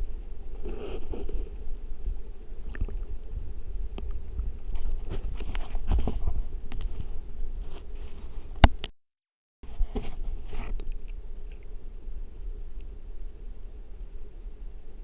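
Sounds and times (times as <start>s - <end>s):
underwater rumble of flowing water: 0.0s - 8.9s, 9.7s - 15.0s
small underwater clicks: 2.6s - 3.2s, 3.9s - 6.0s, 10.7s - 11.8s.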